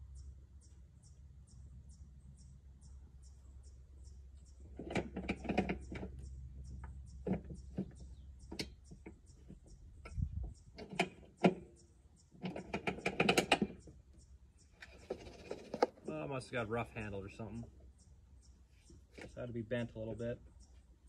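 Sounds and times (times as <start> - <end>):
lawn mower parts rattling: 4.7 - 6.2, 7.2 - 11.8, 12.4 - 13.9, 14.8 - 16.1.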